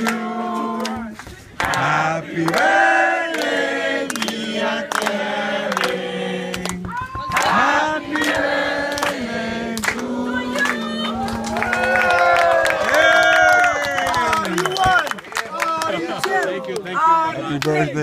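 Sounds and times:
group singing in unison: 0:00.0 - 0:11.6
rhythmic hand clapping: 0:00.0 - 0:16.9.

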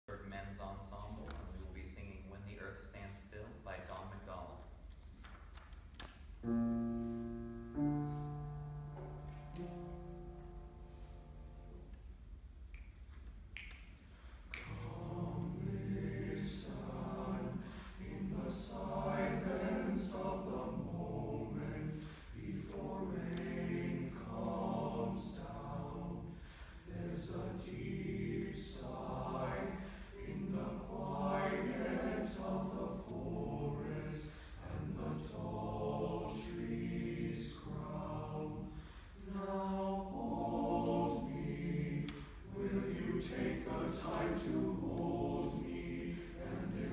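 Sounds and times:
boys' choir singing: 0:14.5 - 0:46.9.

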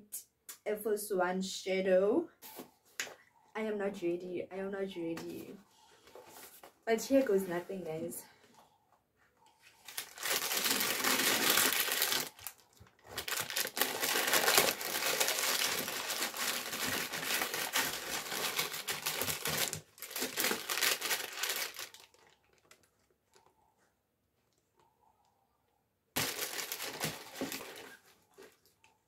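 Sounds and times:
gift packaging rustling: 0:09.6 - 0:23.5, 0:26.2 - 0:28.7.

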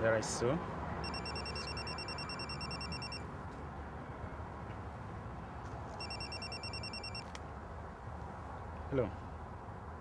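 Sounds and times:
electronic telephone ringer trilling: 0:01.0 - 0:03.2, 0:06.0 - 0:07.2.

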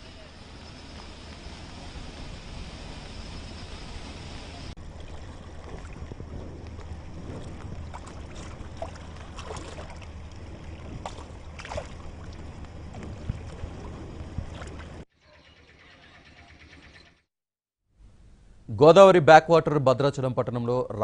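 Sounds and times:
wind noise on microphone: 0:01.0 - 0:15.0.

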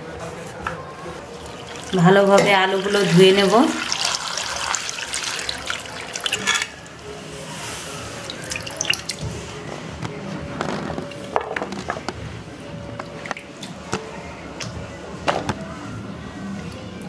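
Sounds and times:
water pouring into metal bowl: 0:01.4 - 0:06.9, 0:08.2 - 0:09.2.

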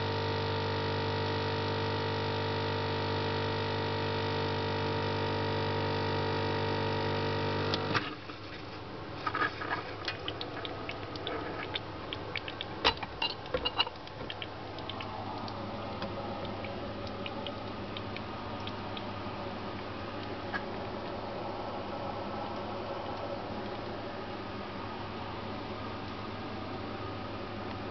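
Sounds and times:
espresso machine pump buzzing: 0:00.0 - 0:08.0
glass cup clinking on metal: 0:12.9 - 0:14.0.

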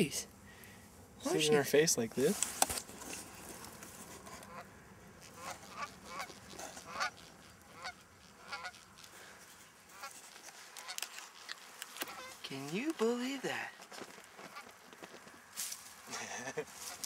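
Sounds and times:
geese honking: 0:04.2 - 0:12.9, 0:14.4 - 0:14.8.

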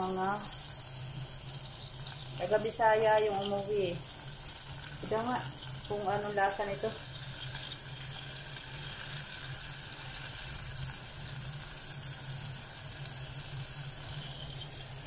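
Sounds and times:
sausages sizzling in a saucepan: 0:00.0 - 0:15.0.

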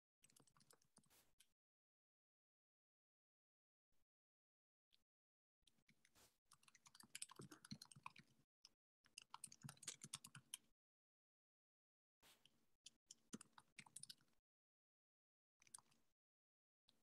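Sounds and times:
faint rapid clicking: 0:00.2 - 0:01.1, 0:06.0 - 0:08.4, 0:09.0 - 0:10.7, 0:13.1 - 0:14.4.

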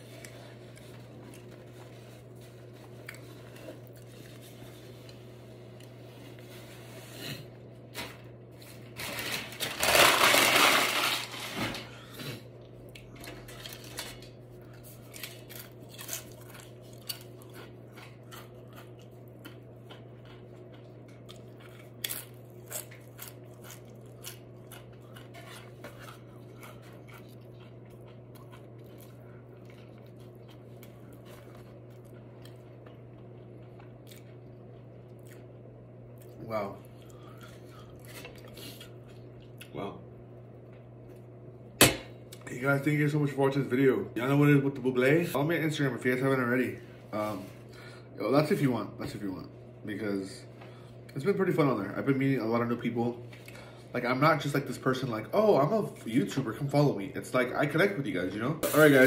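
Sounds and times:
low steady hum: 0:00.0 - 0:59.0
crunching tortilla chips: 0:08.6 - 0:11.6, 0:13.0 - 0:35.4.

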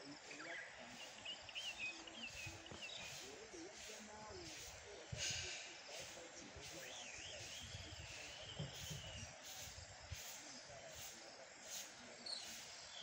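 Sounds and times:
insects chirping: 0:00.0 - 0:13.0
bird whistled song: 0:00.4 - 0:03.2, 0:06.6 - 0:09.3.

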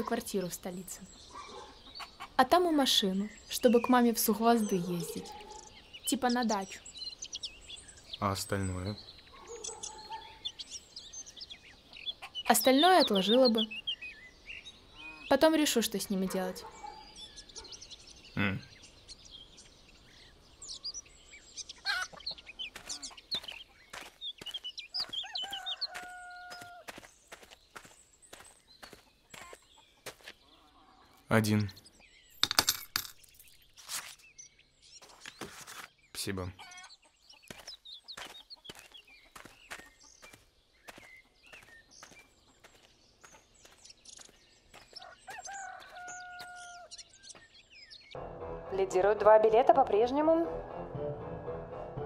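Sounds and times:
small birds chirping: 0:00.0 - 0:48.2
chickens clucking: 0:01.4 - 0:02.5, 0:21.8 - 0:27.0
chickens: 0:21.7 - 0:31.3, 0:44.7 - 0:46.9
rooster crowing: 0:25.2 - 0:26.9, 0:45.0 - 0:46.9.

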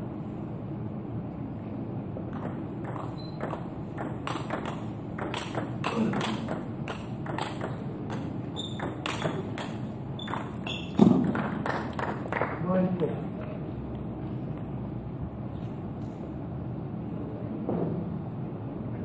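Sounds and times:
table tennis ball clicking: 0:02.3 - 0:12.6.

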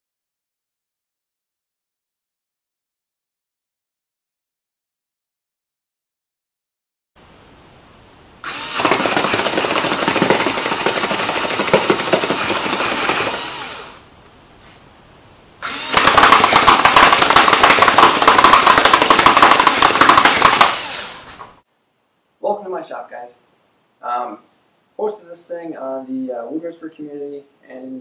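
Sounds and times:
electric motor turning: 0:08.4 - 0:14.0, 0:15.6 - 0:21.6
rubber band gun firing: 0:08.4 - 0:14.0, 0:15.6 - 0:21.3.

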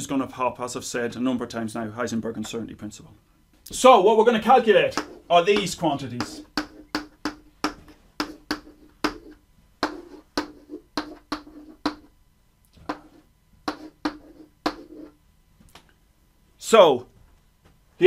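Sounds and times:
chalk tapping and scraping blackboard: 0:04.5 - 0:12.1, 0:12.8 - 0:15.2.

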